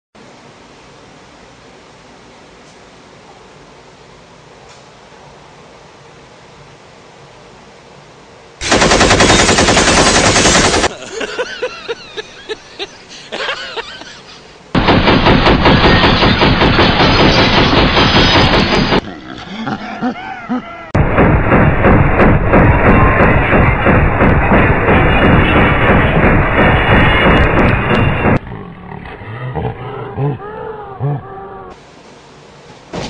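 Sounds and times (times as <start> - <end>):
machine-gun bursts: 8.6 - 11.0, 14.8 - 19.0, 21.0 - 28.4
single gunshots: 8.6 - 11.0, 14.8 - 19.0, 21.0 - 28.4.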